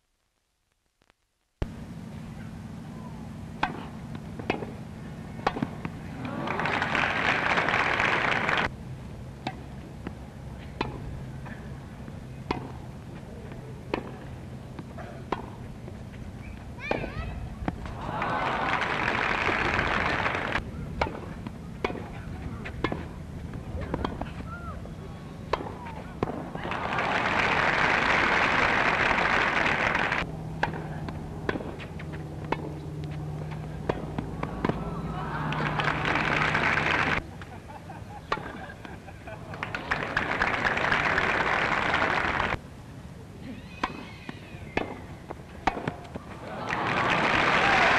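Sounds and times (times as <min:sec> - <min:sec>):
steady low hum: 0:00.0 - 0:47.9
tennis ball struck by rackets: 0:03.6 - 0:04.8, 0:05.4 - 0:06.0, 0:09.4 - 0:11.2, 0:12.4 - 0:12.8, 0:13.9 - 0:15.6, 0:20.5 - 0:24.5, 0:25.5 - 0:26.7, 0:30.5 - 0:37.2, 0:38.2 - 0:38.8, 0:43.8 - 0:46.4
crowd clapping: 0:06.2 - 0:08.7, 0:17.9 - 0:20.6, 0:26.6 - 0:30.3, 0:34.5 - 0:37.2, 0:39.4 - 0:42.6, 0:46.4 - 0:47.9.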